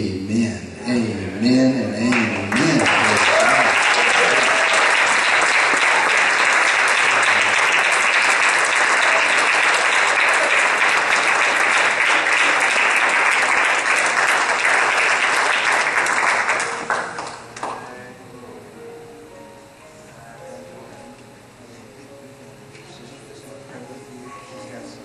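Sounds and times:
congregation applauding: 2.0 - 18.0.

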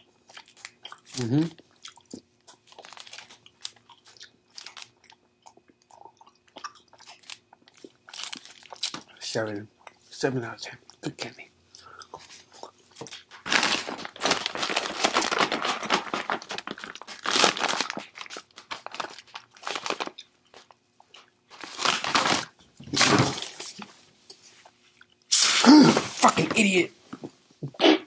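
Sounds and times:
foil chip bag crinkling: 2.5 - 5.0, 7.0 - 9.2, 12.9 - 23.7.

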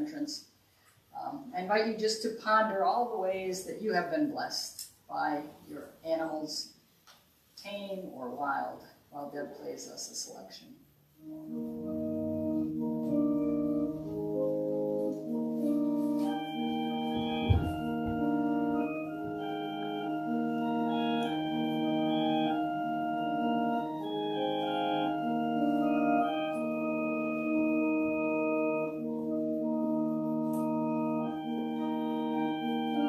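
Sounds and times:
organ playing held chords: 11.2 - 33.0.

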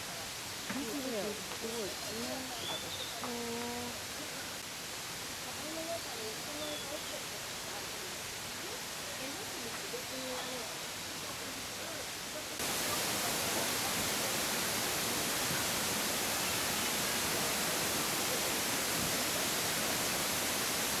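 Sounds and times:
outdoor rushing hiss: 12.6 - 21.0.

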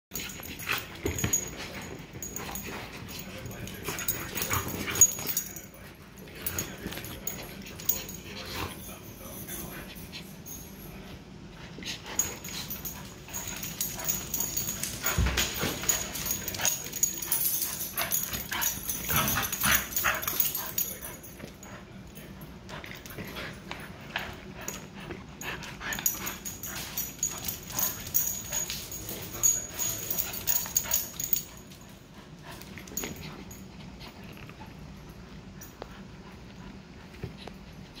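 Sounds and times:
paws scrabbling on hard floor: 0.2 - 5.5, 11.8 - 20.8.

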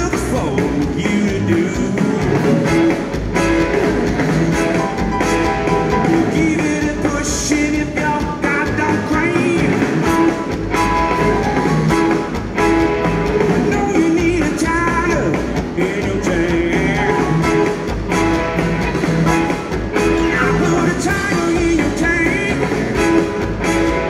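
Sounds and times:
man singing: 0.0 - 3.0, 5.8 - 10.3, 13.6 - 17.8, 20.0 - 23.2
electric blues band playing: 0.0 - 24.0.

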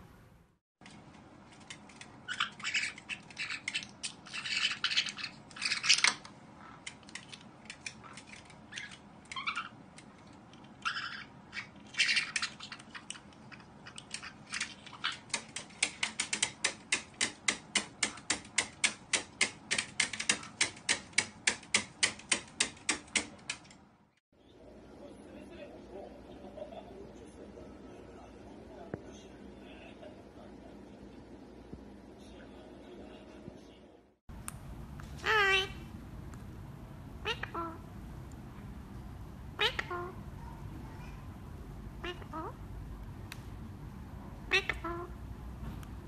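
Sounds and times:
parrots squawking and shrieking: 1.9 - 9.8, 10.6 - 16.6, 35.2 - 35.9, 37.2 - 37.8, 39.6 - 41.3, 42.0 - 42.7, 44.5 - 45.2.

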